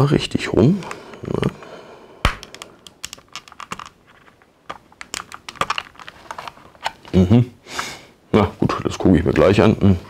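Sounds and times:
plastic toy parts clicking: 2.4 - 4.0, 4.7 - 7.0.

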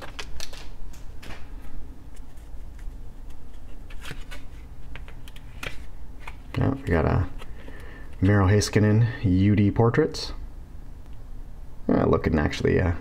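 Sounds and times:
foil wrapper crinkling: 0.0 - 0.7
low steady hum: 0.0 - 13.0.

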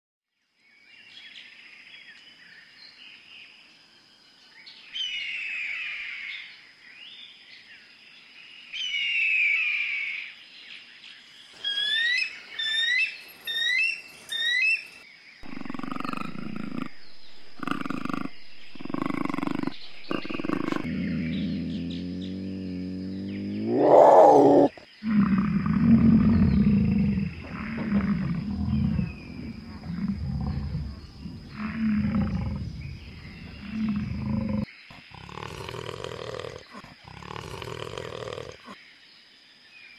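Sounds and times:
birds calling faintly: 11.2 - 39.0
eagle high piping chirps: 11.6 - 34.6
bison grunts and bellows: 15.4 - 38.8.

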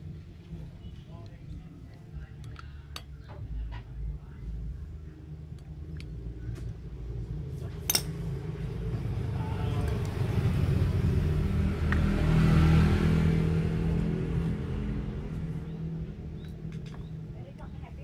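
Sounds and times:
vehicle engine passing by: 8.2 - 16.4.

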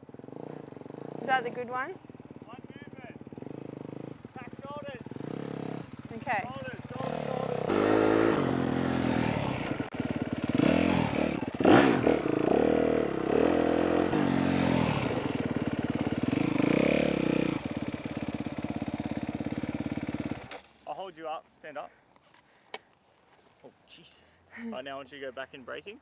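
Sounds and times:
dirt bike engine revving: 0.0 - 20.7.

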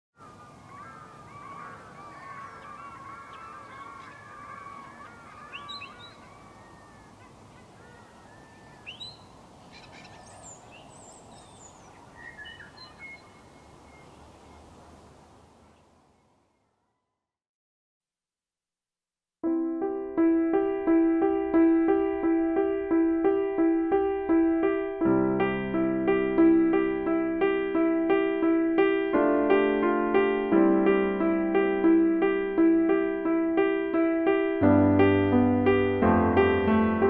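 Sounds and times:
birds calling: 0.2 - 16.8
faint outdoor background: 0.2 - 17.4, 18.1 - 37.0.

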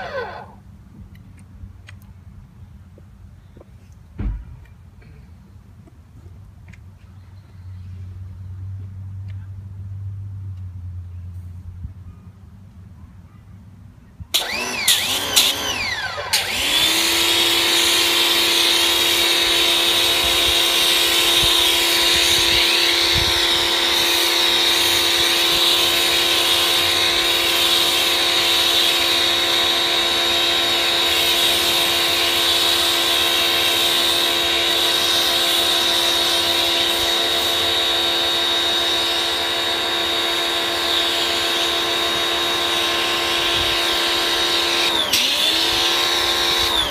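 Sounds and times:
pressure washer whining: 0.0 - 0.6, 14.3 - 46.9.

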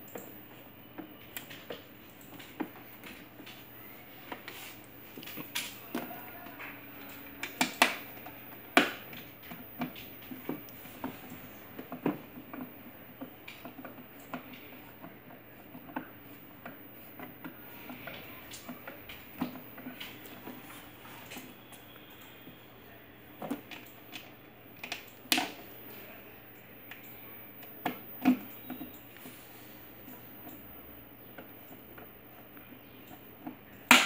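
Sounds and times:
hard plastic parts clicking and knocking: 23.4 - 25.7.

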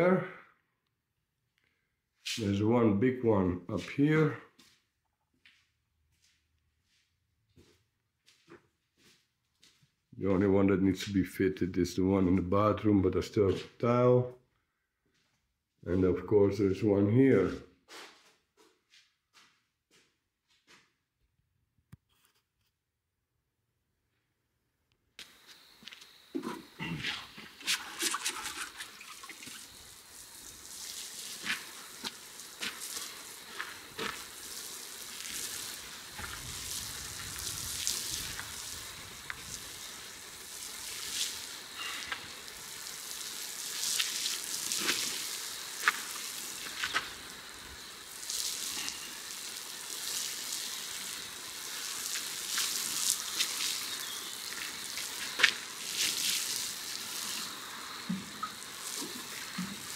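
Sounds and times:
water spattering onto soil: 26.4 - 59.9.

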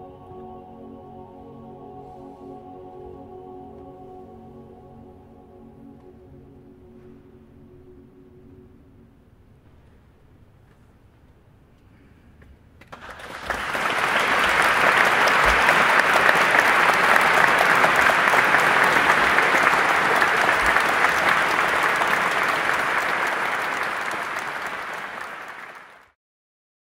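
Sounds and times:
audience applauding: 12.9 - 26.2.

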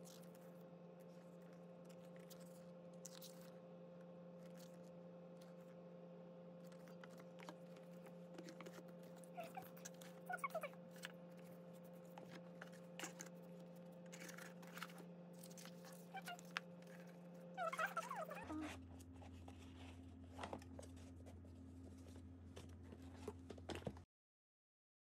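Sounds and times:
steady low hum: 0.0 - 24.0
paper and cardboard rustling: 14.0 - 23.8.

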